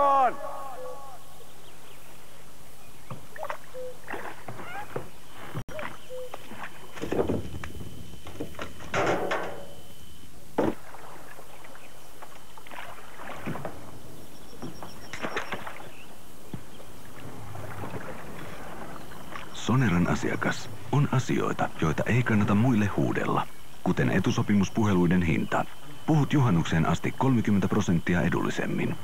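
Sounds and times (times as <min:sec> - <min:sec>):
oars splashing: 0:00.0 - 0:29.0
oars knocking in oarlocks: 0:03.0 - 0:09.6.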